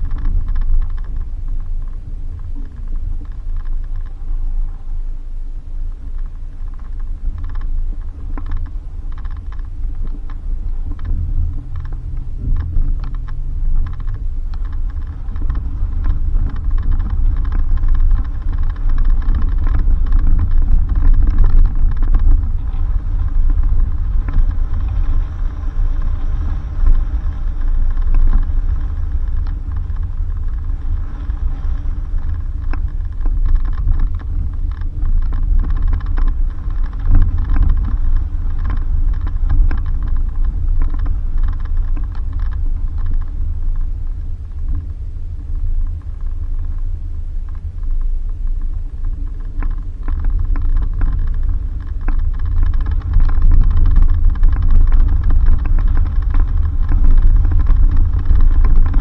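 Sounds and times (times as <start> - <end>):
vehicle engine low rumble: 0.0 - 59.0
knocks and rattles: 6.6 - 43.8.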